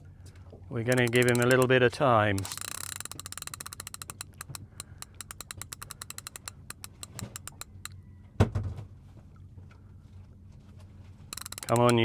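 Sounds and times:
fishing reel ratchet clicking: 0.8s - 8.0s, 11.3s - 12.0s.

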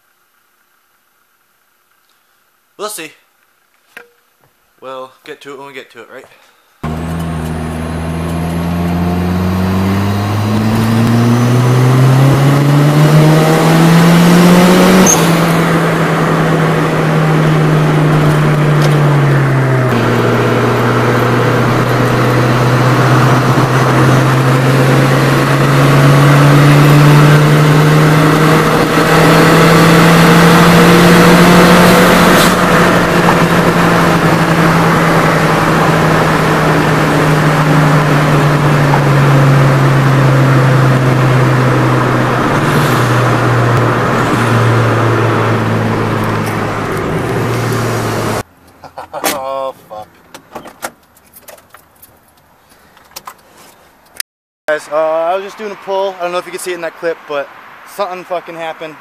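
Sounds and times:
car engine revving: 6.8s - 48.5s, 54.7s - 59.0s.

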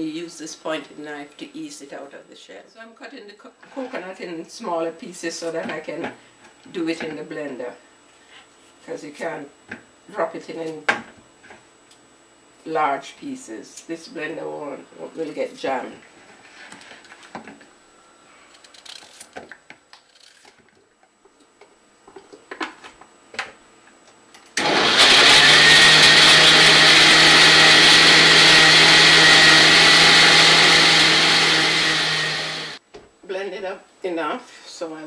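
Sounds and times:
blender grinding: 24.6s - 32.8s.

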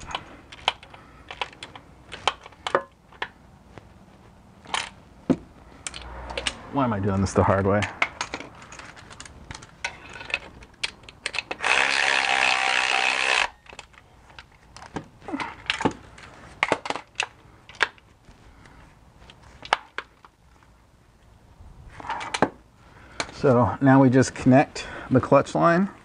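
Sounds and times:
cordless ratchet motor spinning: 11.4s - 13.6s.

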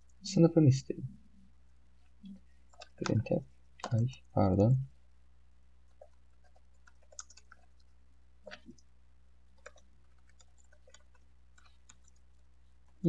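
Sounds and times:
faint keyboard keystrokes: 2.7s - 4.3s, 5.9s - 7.9s.

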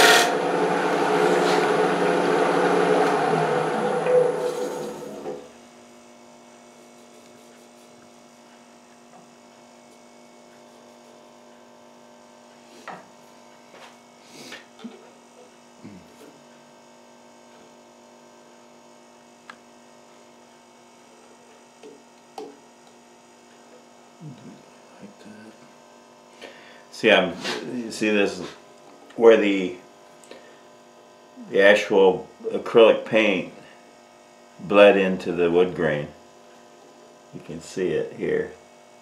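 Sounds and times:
wood lathe humming: 0.0s - 5.5s.

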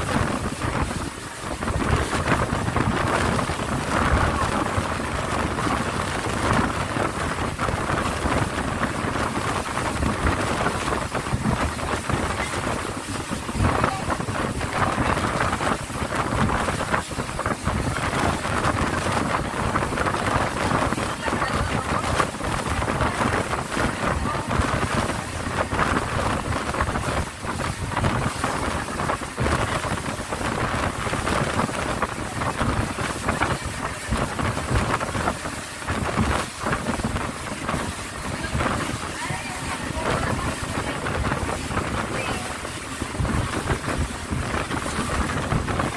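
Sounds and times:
boat engine running: 0.0s - 45.9s
rushing water: 0.0s - 45.9s
wind buffeting microphone: 0.0s - 45.9s.

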